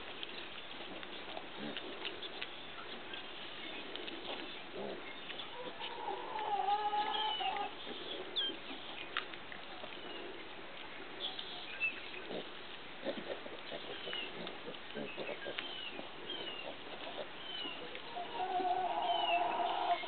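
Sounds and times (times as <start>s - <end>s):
piglets calling: 3.8s - 9.0s, 11.3s - 20.0s.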